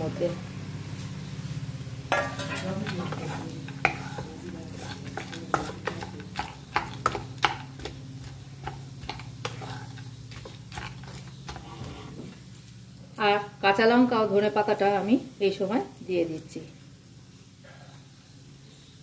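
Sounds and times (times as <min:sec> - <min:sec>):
spatula knocking and scraping pan: 0:02.1 - 0:12.4.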